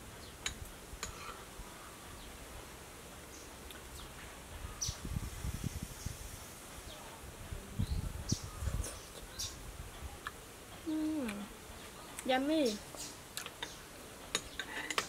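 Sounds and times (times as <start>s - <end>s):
soft chewing sounds: 10.0s - 15.0s.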